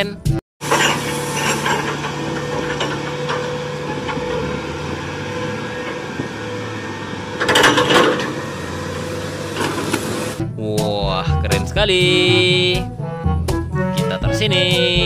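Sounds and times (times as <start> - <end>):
crane engine running: 0.6 - 10.4.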